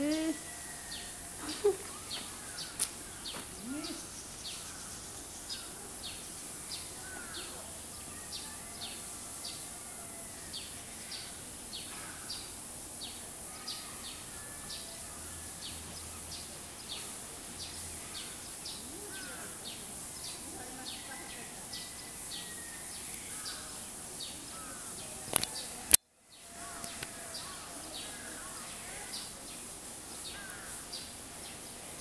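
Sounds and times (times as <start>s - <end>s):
steady high hiss: 0.0s - 32.0s.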